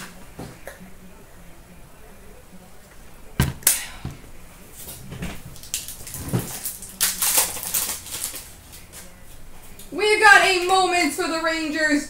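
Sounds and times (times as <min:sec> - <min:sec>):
wrappers ripping and crinkling: 0:05.5 - 0:09.1.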